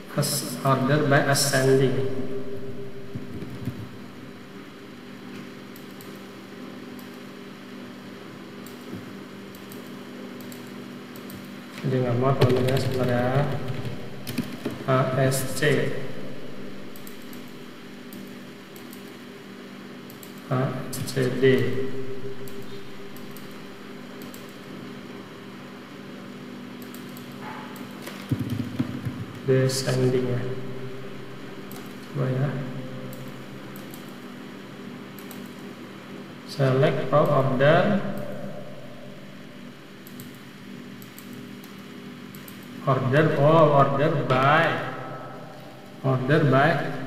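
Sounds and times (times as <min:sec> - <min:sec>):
steady low hum: 0:00.0 - 0:47.0
keyboard and mouse clicks: 0:03.2 - 0:03.9, 0:08.6 - 0:14.8, 0:24.2 - 0:24.6, 0:26.8 - 0:29.4, 0:35.2 - 0:35.6, 0:40.0 - 0:40.4, 0:41.0 - 0:42.7.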